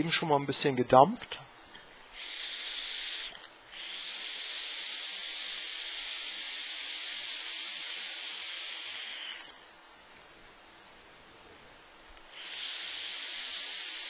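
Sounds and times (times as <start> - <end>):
hiss of air drawn through vape: 2.1 - 9.6, 12.3 - 14.0.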